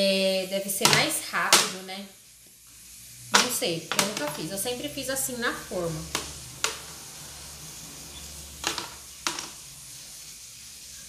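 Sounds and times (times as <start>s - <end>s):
cake tins knocking in metal pan: 3.4s - 4.5s, 8.6s - 9.6s.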